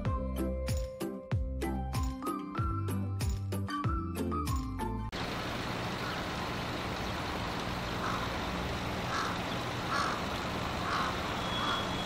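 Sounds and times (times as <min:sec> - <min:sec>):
bird calling: 0:05.7 - 0:12.0.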